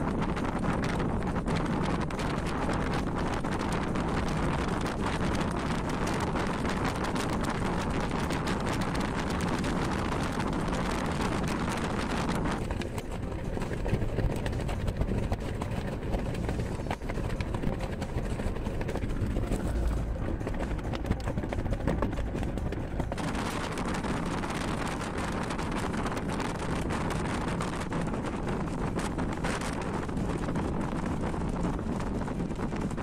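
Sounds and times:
car rumbling on road: 0.0 - 33.0
plastic sheet flapping: 0.0 - 33.0
wind rushing past car window: 0.0 - 33.0.

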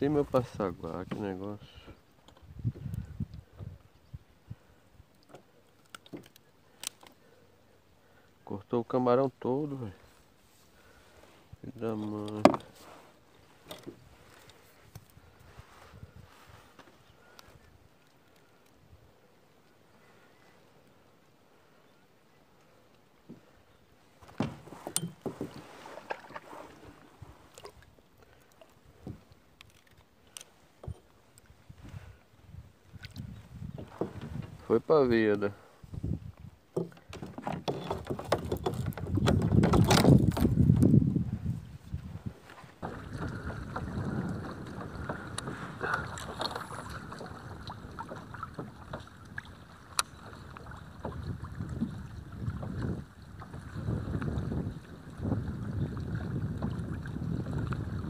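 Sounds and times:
knocks and scrapes on kayak hull: 0.2 - 1.5, 10.4 - 17.0, 23.2 - 27.8, 33.2 - 34.7, 35.9 - 58.0
wind on microphone: 1.7 - 4.8, 14.0 - 16.7, 30.8 - 34.8, 35.8 - 36.6, 38.0 - 58.0
water splashing: 24.3 - 30.0, 42.8 - 58.0.

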